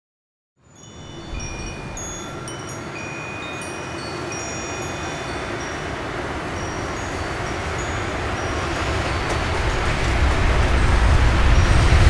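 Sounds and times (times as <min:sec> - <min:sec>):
wind noise: 0:00.6 - 0:12.0
high ringing tones: 0:00.7 - 0:09.5.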